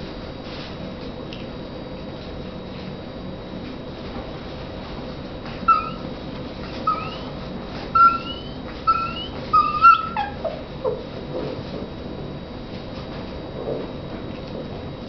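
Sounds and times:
puppy whining: 5.5 - 11.2
puppies squeaking: 5.6 - 11.1.

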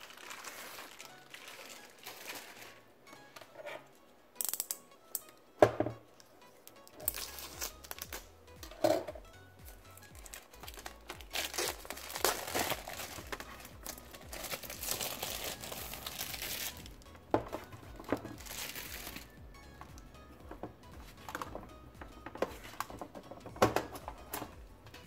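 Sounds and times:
plastic shrink wrap crinkling: 0.0 - 2.9, 7.0 - 8.3, 10.0 - 17.0, 18.0 - 19.3
background music: 0.0 - 25.0.

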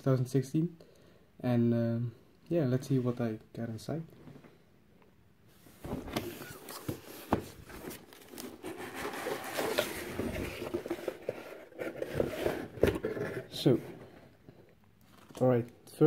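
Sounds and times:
cardboard flaps scraping and rustling: 5.8 - 14.1.

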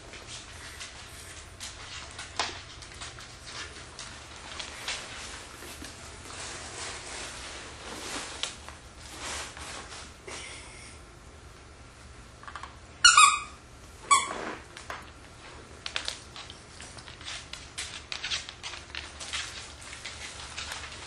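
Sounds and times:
squeaky toy squeaking: 13.0 - 14.3
paper bag crinkling: 15.4 - 21.0.

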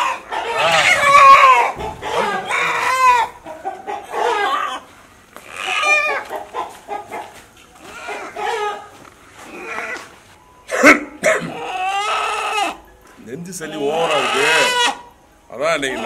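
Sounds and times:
chicken squawking in alarm: 0.0 - 6.7, 7.8 - 10.1, 10.9 - 12.8, 13.6 - 15.1.

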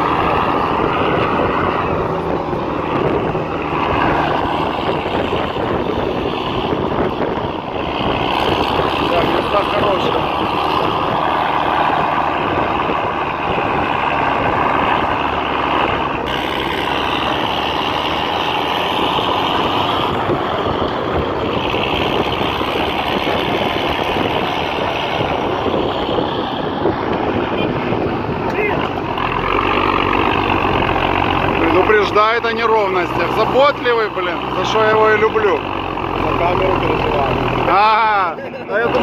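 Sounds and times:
diesel truck engine running: 0.0 - 39.0.

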